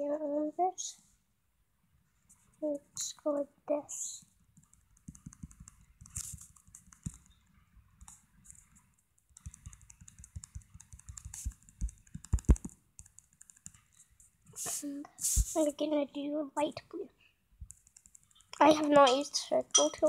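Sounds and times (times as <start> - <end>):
tapping on touchscreen: 4.6 - 7.4, 8.0 - 13.9.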